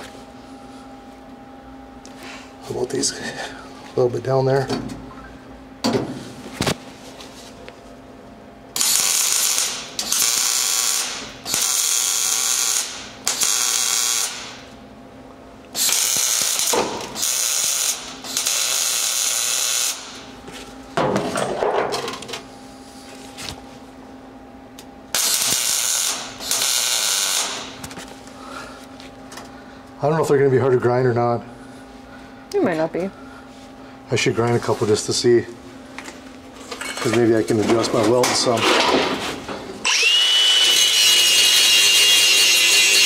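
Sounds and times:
welder crackling buzz: 8.7 - 14.8, 15.7 - 20.3, 25.1 - 27.9, 39.8 - 43.0.

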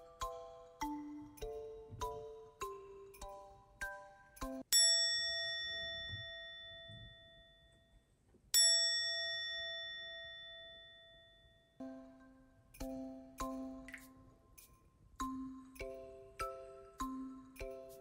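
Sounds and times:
plinking music notes: 0.0 - 4.7.

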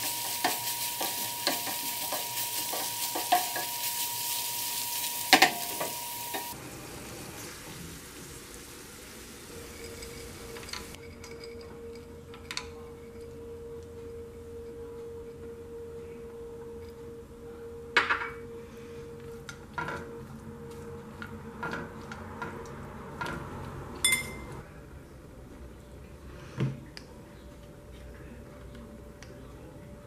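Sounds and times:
wooden spoon scraping a frying pan: 0.0 - 6.6.

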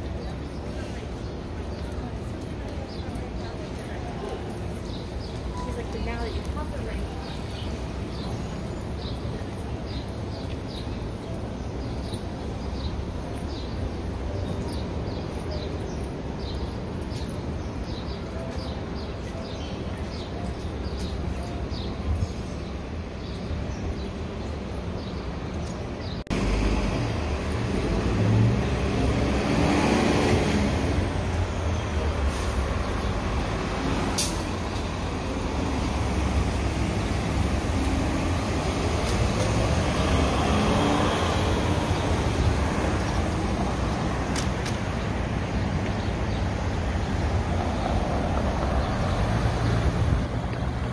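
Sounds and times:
city street traffic: 0.0 - 50.9
bus passing close by: 26.2 - 50.9.

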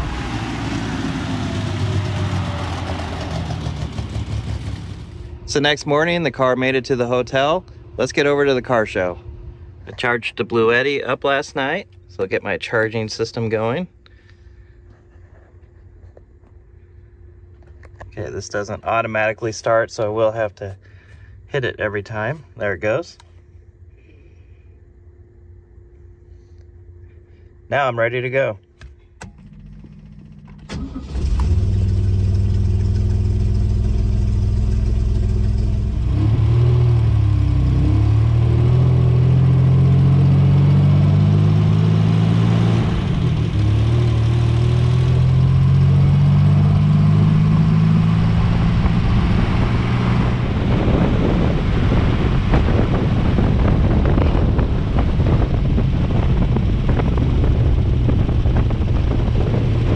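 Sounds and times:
car engine starting and revving: 0.0 - 5.3, 29.2 - 59.9
road noise: 0.0 - 22.0, 29.4 - 59.9.

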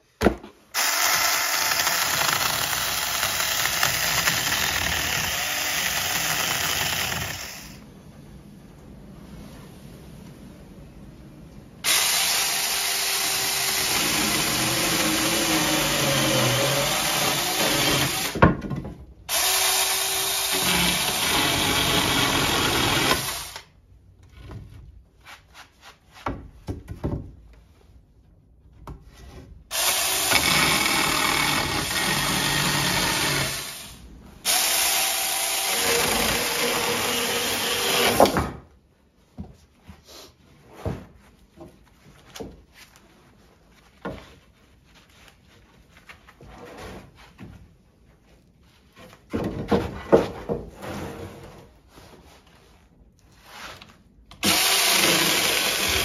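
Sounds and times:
chainsaw cutting thin wood: 0.8 - 7.8, 19.3 - 23.6, 54.4 - 56.0.

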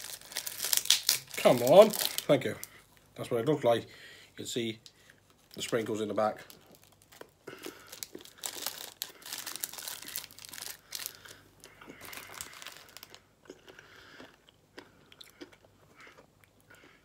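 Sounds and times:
plastic wrapper crinkling: 0.0 - 2.7, 5.2 - 13.2.

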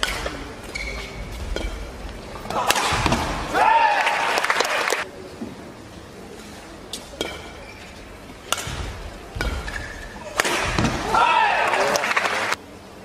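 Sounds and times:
shoe squeaks on court: 0.7 - 1.2, 7.6 - 8.0
racket striking shuttlecock: 2.5 - 3.4, 6.9 - 7.6, 8.5 - 11.3.

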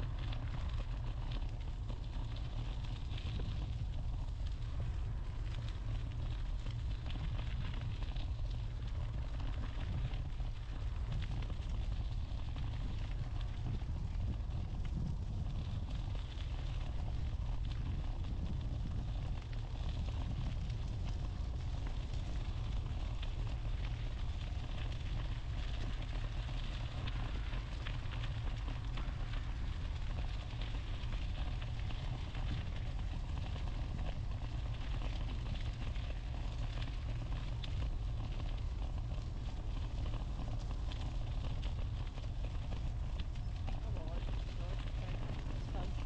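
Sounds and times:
wind noise on microphone: 0.0 - 46.0.

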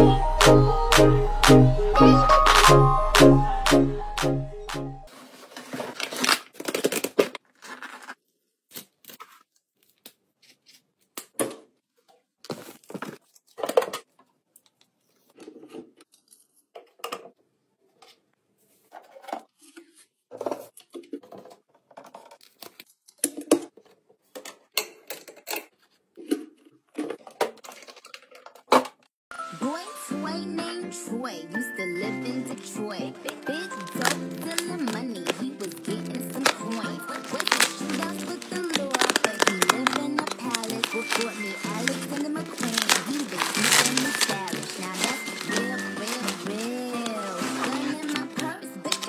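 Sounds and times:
packaging tearing and rustling: 5.1 - 10.8, 33.2 - 49.0
plastic toy parts clicking: 36.4 - 44.3.

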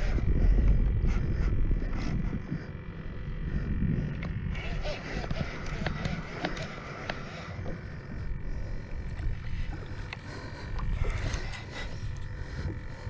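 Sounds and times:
wind rumbling on microphone: 0.0 - 13.0
fishing reel clicks and ticks: 4.1 - 7.6, 10.0 - 12.3.

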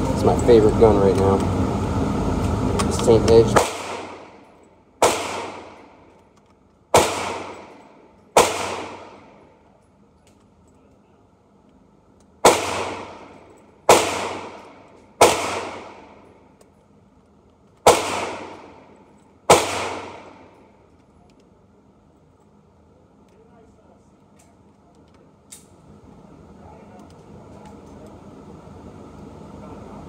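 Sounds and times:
gunshots echoing indoors: 3.6 - 6.1, 6.9 - 9.5, 12.4 - 16.3, 17.8 - 18.9, 19.5 - 20.6.

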